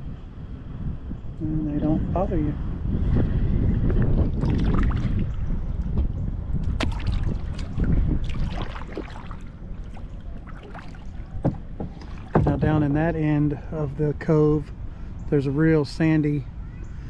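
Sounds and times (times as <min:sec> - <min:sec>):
wind noise on microphone: 0:00.0 - 0:15.4
kayak paddle strokes splashing: 0:06.6 - 0:12.6
water trickling off blades: 0:06.6 - 0:14.0.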